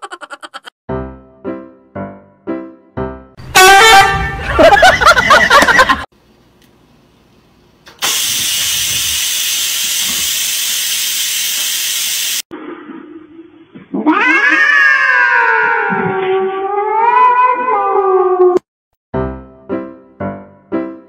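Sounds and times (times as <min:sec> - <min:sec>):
rice cooker steam hissing: 0:08.0 - 0:12.5
cat yowling: 0:14.0 - 0:18.6.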